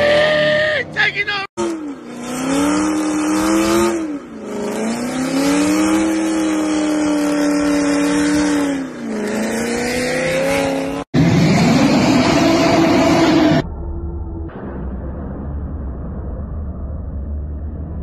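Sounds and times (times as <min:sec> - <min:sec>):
car engine at high revs: 0:01.6 - 0:13.6.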